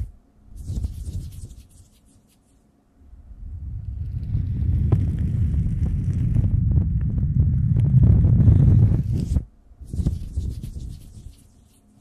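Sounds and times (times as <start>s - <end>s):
hands rubbing on microphone: 0.0s - 2.6s, 7.9s - 12.0s.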